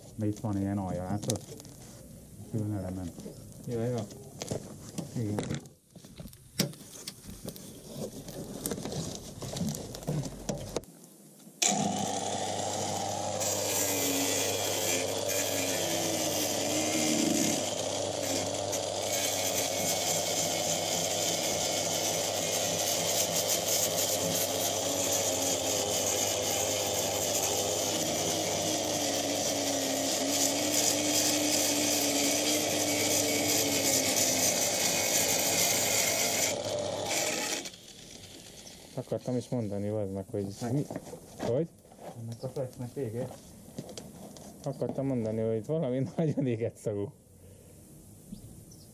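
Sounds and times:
angle grinder on metal: 11.6s - 39.5s.

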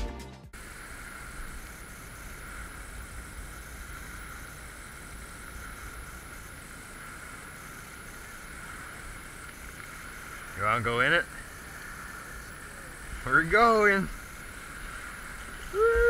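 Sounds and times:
background music: 0.0s - 0.5s
distant fountain water rushing: 0.6s - 16.0s.

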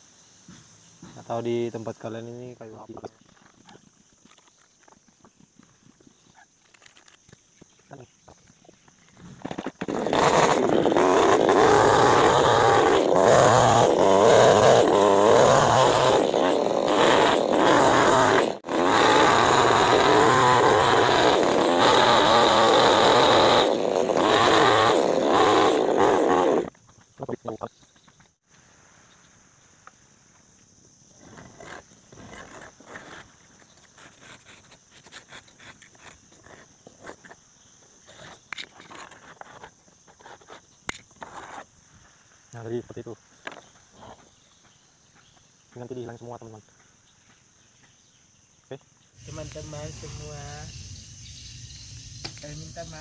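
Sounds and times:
chainsaw cutting log: 9.2s - 26.8s, 31.2s - 37.4s.

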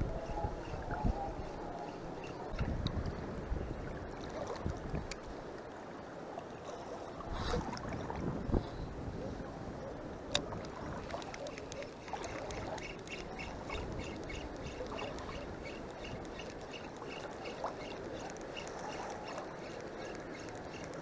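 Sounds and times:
sea water lapping: 0.0s - 21.0s
light regular ticking: 10.3s - 21.0s.

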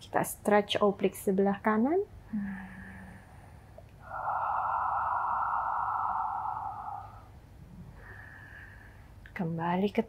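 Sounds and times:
woman exhaling: 4.0s - 9.1s.

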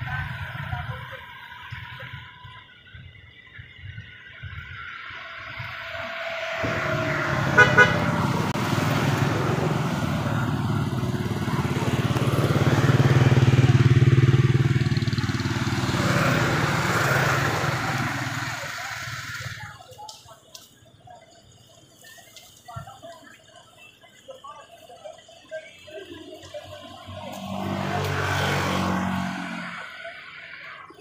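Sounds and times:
vehicle engine passing by: 5.0s - 19.6s, 26.4s - 31.0s
car horn beeps: 7.4s - 8.4s.

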